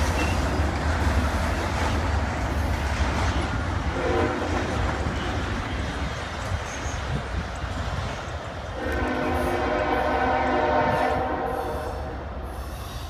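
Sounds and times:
train rumbling and rattling: 0.0 - 13.0
faint train horn: 3.9 - 4.8, 8.8 - 12.6.

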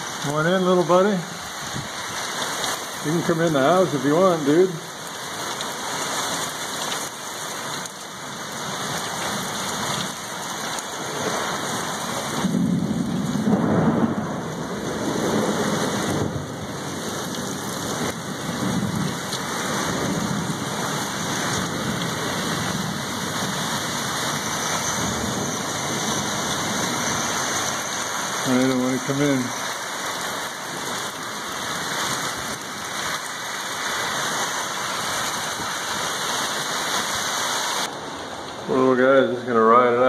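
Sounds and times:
heavy rain pouring: 0.0 - 40.0
thunder rumbling: 11.0 - 29.1.

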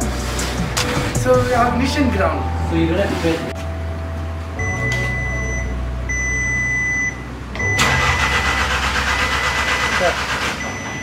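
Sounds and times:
car engine humming: 0.0 - 11.0
dashboard warning chime beeping: 4.6 - 11.0.

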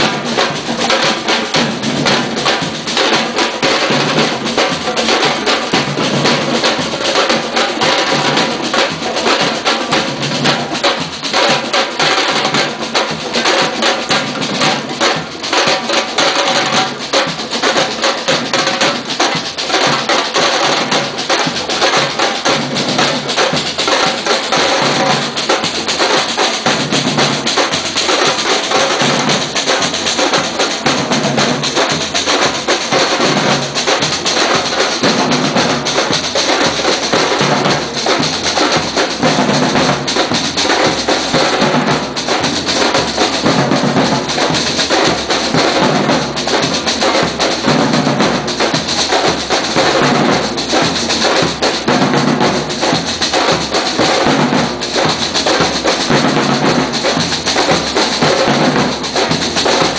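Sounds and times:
bass drums: 0.0 - 59.9
snare drums: 0.0 - 59.9.

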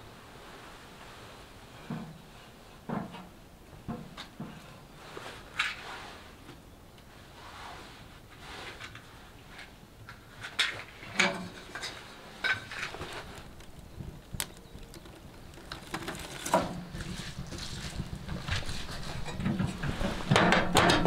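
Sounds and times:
kindling crackling and popping: 10.0 - 21.0.

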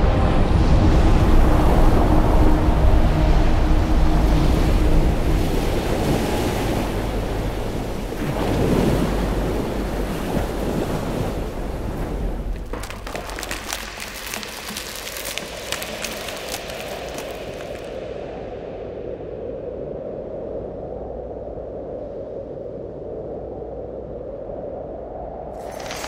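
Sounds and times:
dense crackling: 12.4 - 18.0.

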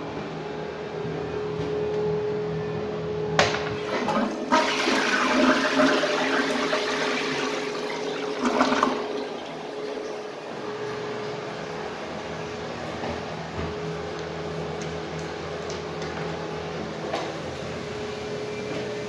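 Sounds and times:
toilet water rushing and draining: 3.7 - 12.3
toilet tank refilling hiss: 3.8 - 10.2.

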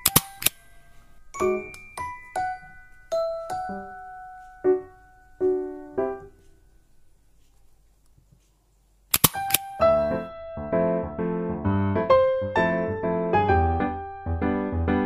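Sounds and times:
sharp clicks: 0.0 - 0.7, 9.1 - 9.7
piano music: 0.0 - 6.9, 9.4 - 15.0.

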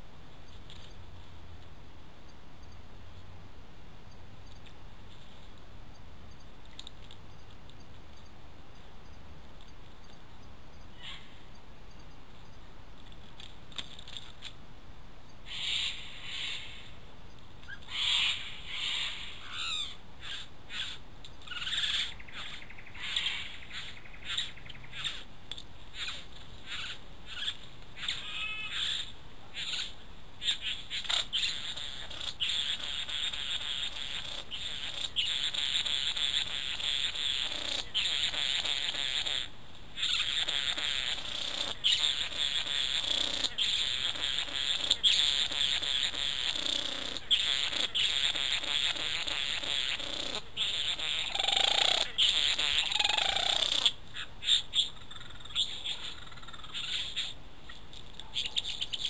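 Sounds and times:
steady hiss: 0.0 - 55.0
bird rasping calls and chattering: 10.8 - 11.6, 15.4 - 17.0, 17.6 - 59.0.

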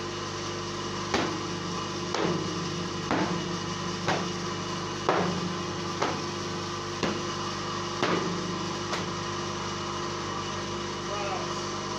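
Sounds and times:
machine hum: 0.0 - 11.9
rag slapping on steel table: 1.1 - 1.4, 4.0 - 4.4, 5.1 - 6.3, 7.0 - 7.3.

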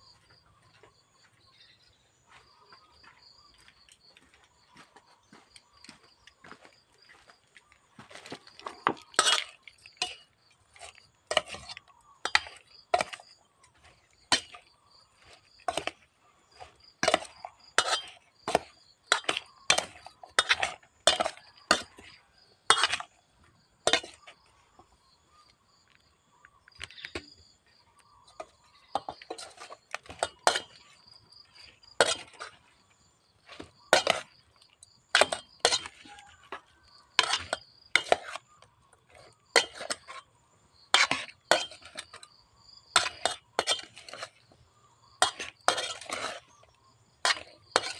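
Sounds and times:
metal spoon scraping a pot: 8.5 - 23.2, 23.8 - 24.6, 28.2 - 47.9.

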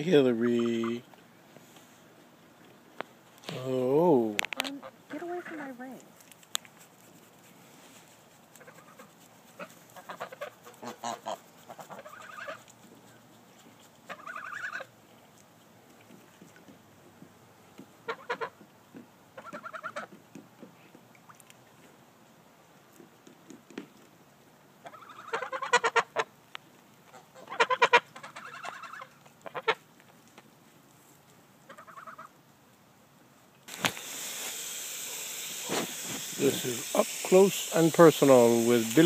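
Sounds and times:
steady hiss: 0.0 - 5.1, 6.0 - 14.2, 32.6 - 39.0
geese honking: 8.5 - 12.7, 14.0 - 14.9, 18.0 - 18.6, 19.4 - 20.1, 24.8 - 26.3, 27.1 - 29.8, 31.7 - 32.3.

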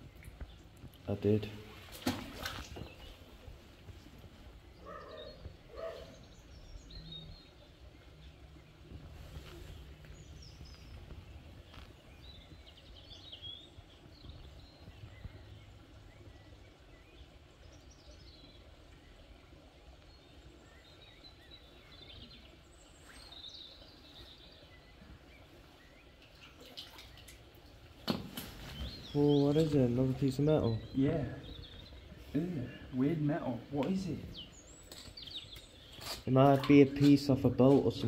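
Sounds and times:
water splashes and drips: 0.0 - 4.8, 13.7 - 38.0
faint bird chirps: 4.7 - 8.4.

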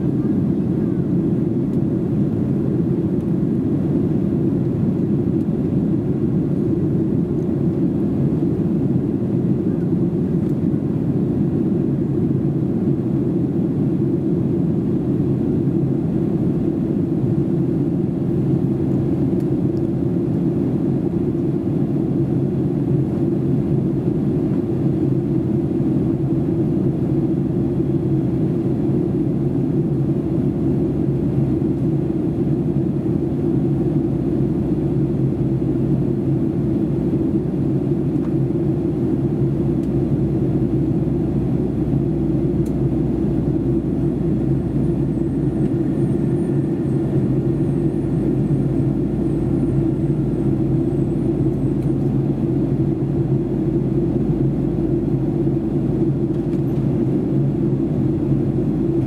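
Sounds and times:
airflow over fuselage: 0.0 - 59.0
airplane cabin engine rumble: 0.0 - 59.0.

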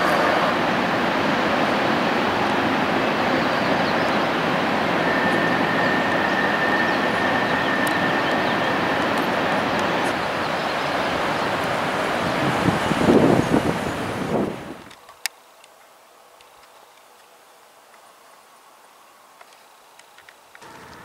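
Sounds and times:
train wheels rumbling on rail: 0.0 - 14.9
thin high whine: 2.6 - 11.2.

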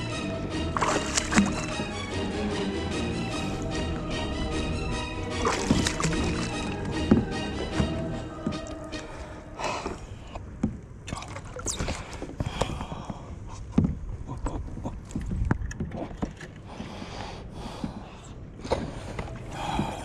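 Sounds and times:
water against hull: 0.0 - 20.0
knocks and thumps on kayak: 0.8 - 2.0, 5.4 - 8.7.

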